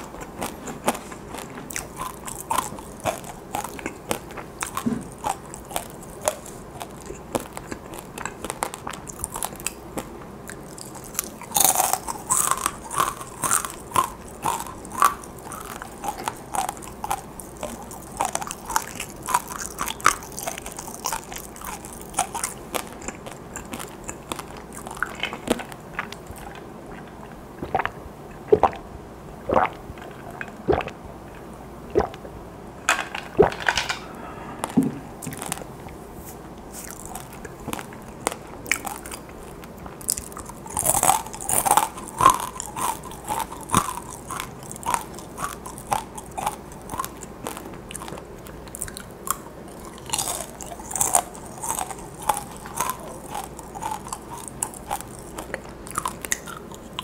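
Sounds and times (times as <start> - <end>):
crunchy chips being chewed: 0.0 - 28.8, 33.1 - 57.0
person drinking from a cup: 23.0 - 28.9, 29.5 - 32.3, 33.2 - 46.6.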